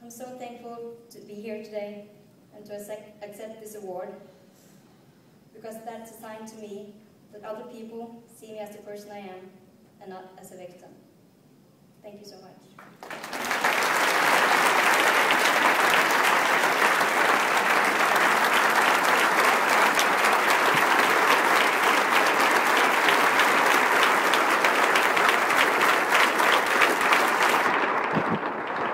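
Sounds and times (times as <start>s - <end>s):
audience applauding: 12.8s - 28.9s.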